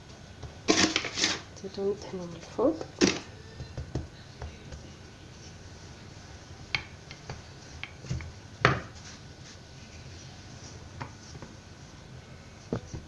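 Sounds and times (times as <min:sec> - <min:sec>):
hands working dough: 0:00.0 - 0:13.0
rolling pin knocking on countertop: 0:06.8 - 0:08.9.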